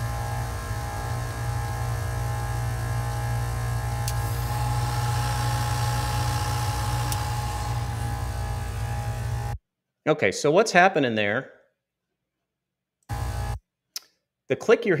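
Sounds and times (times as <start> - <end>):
compressor humming: 0.0 - 9.6, 13.1 - 13.6.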